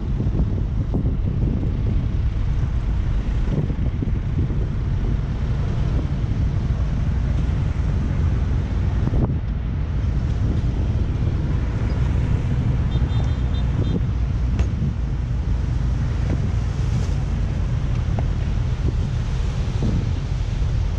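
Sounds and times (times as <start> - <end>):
diesel truck engines running: 0.0 - 20.9
wind buffeting microphone: 0.0 - 20.9.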